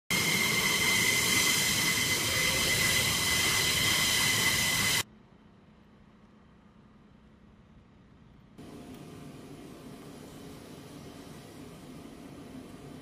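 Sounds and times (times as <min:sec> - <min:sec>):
jet engines with turbine whine: 0:00.1 - 0:05.1, 0:08.6 - 0:13.0.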